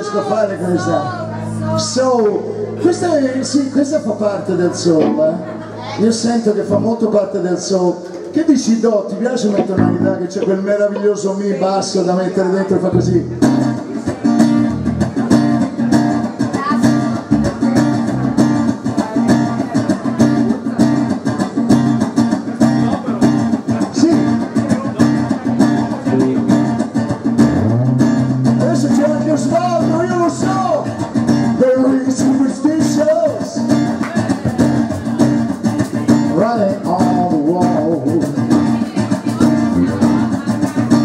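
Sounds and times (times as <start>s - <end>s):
funk band playing: 4.0s - 7.4s, 9.4s - 12.0s, 12.8s - 41.0s
electric guitar bending fills: 4.1s - 7.2s, 9.4s - 11.6s, 12.9s - 20.4s, 25.6s - 31.6s, 39.4s - 41.0s.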